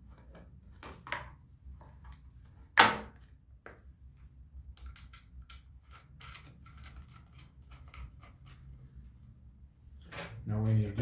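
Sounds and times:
plastic and metal clicks and scrapes: 0:04.8 - 0:08.7.

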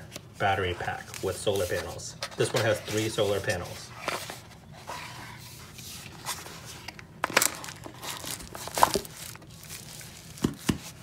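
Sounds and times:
plastic bag crinkling: 0:07.2 - 0:11.0.

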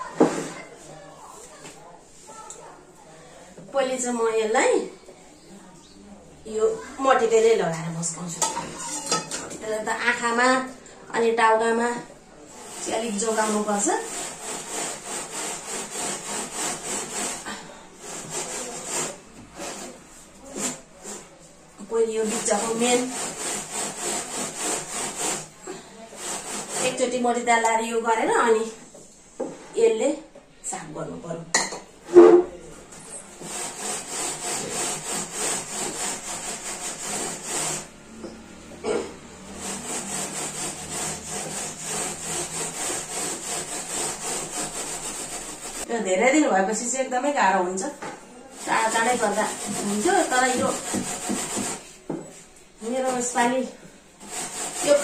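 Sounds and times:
pad scrubbing metal hood: 0:33.4 - 0:38.0, 0:39.4 - 0:45.9, 0:48.6 - 0:52.0, 0:54.2 - 0:55.0.

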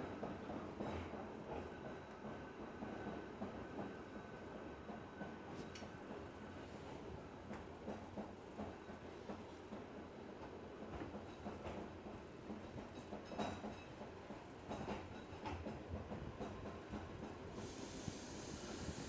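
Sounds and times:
train low rumble: 0:00.0 - 0:19.0
even hiss: 0:17.6 - 0:19.0.

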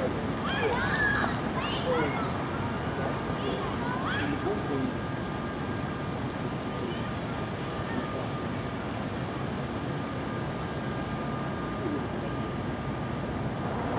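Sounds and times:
faint distant voices: 0:00.0 - 0:13.9
faint high whine: 0:00.0 - 0:13.9
rushing outdoor background noise: 0:00.0 - 0:13.9.

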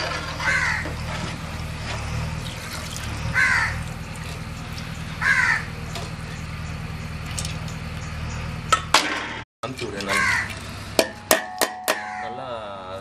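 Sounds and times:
crow cawing: 0:00.4 - 0:00.9, 0:03.3 - 0:03.9, 0:05.2 - 0:05.7, 0:10.1 - 0:10.6, 0:11.9 - 0:12.4.

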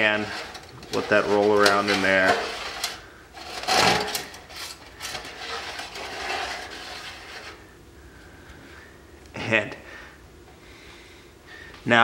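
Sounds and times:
magnet scraping aluminum pan: 0:00.0 - 0:07.6.

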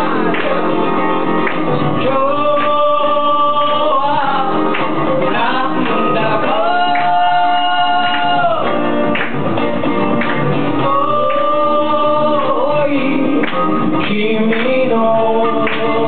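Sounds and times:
strummed guitars: 0:00.0 - 0:16.0
person singing: 0:01.9 - 0:08.8, 0:10.8 - 0:16.0.

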